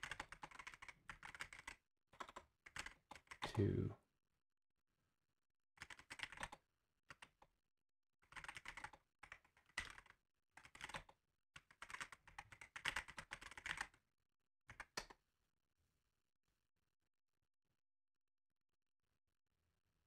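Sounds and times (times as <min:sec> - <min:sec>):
computer keyboard typing: 0:00.0 - 0:03.5, 0:05.8 - 0:07.4, 0:08.3 - 0:14.0.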